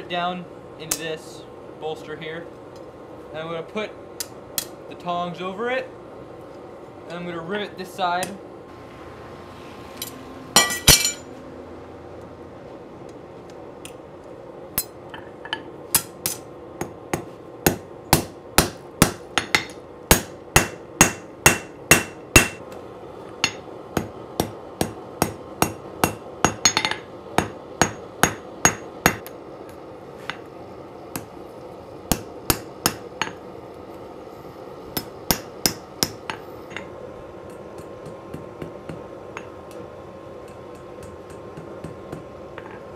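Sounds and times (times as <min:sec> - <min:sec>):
hammer striking hot steel on anvil: 0:10.0 - 0:11.3, 0:14.7 - 0:22.7, 0:23.4 - 0:29.4, 0:31.1 - 0:31.4, 0:32.1 - 0:33.4, 0:34.9 - 0:42.9
steel clanking onto anvil: 0:10.0 - 0:11.3.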